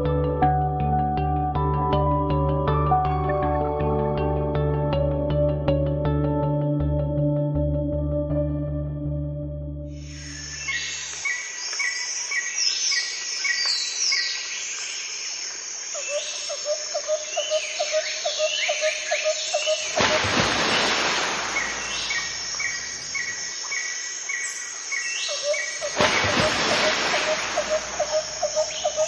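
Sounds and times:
songbirds chirping: 21.0 - 26.2, 26.8 - 29.0
rapid lower bird chirps: 27.2 - 29.0.

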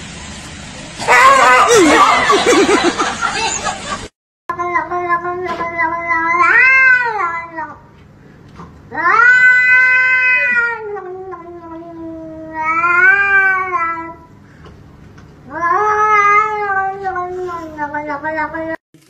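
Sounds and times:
cat meowing: 4.6 - 7.8, 8.9 - 14.2, 15.5 - 18.7.

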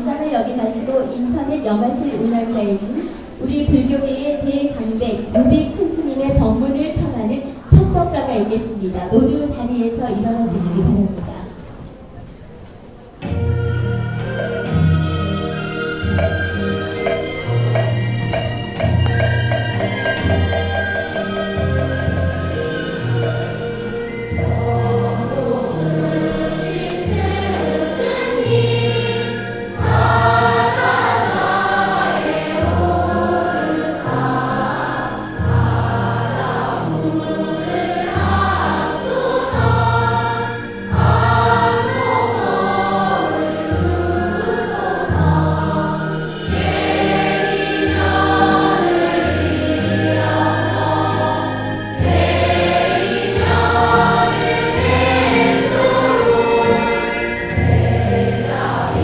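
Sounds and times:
choir singing with instruments: 13.2 - 59.0.

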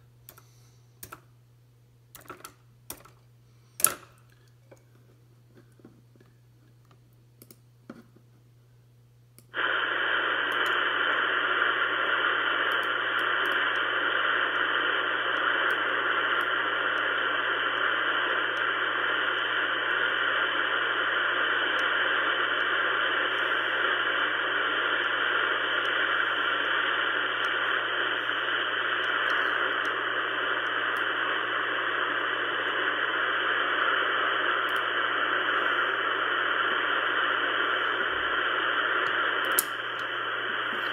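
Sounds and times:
low steady hum: 0.0 - 40.9
radio static hiss: 9.4 - 40.9.

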